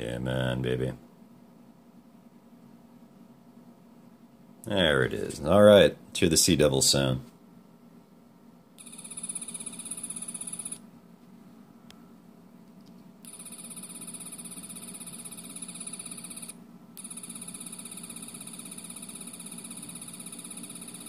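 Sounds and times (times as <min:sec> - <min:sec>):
buzzing wavering electronic tone: 0:08.8 - 0:10.8, 0:13.2 - 0:21.0.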